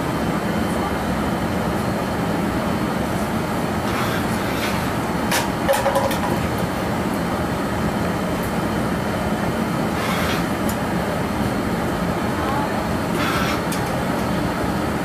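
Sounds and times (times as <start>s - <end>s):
gas furnace and blower roar: 0.0s - 15.0s
metal pipe clicking on rails: 5.3s - 6.4s.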